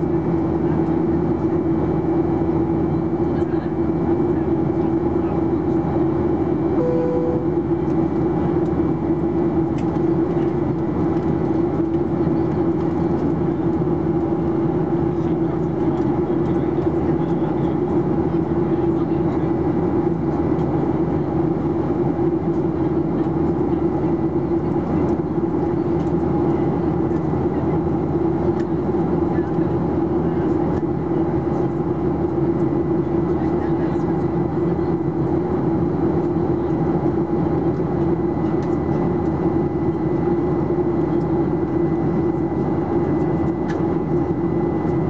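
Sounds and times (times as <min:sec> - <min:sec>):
jet engine drone: 0:00.0 - 0:18.6, 0:19.5 - 0:45.0
strong low hum: 0:06.5 - 0:08.3.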